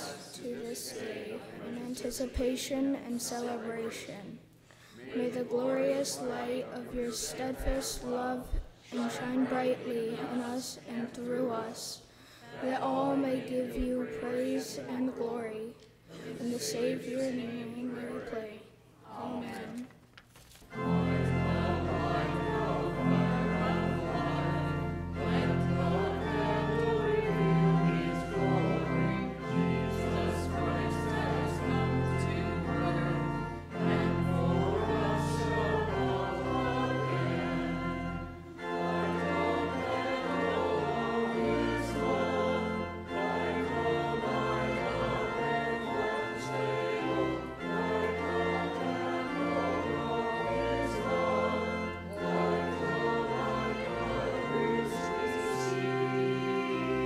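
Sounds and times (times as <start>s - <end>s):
group of voices singing: 0.0s - 19.9s, 20.7s - 57.0s
pipe organ: 19.3s - 57.0s.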